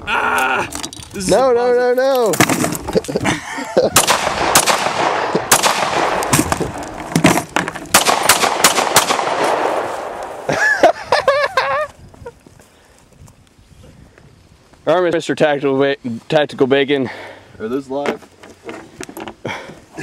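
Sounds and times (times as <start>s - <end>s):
person shouting: 0.0s - 0.7s
pistol shots: 4.0s - 6.8s, 7.9s - 10.4s.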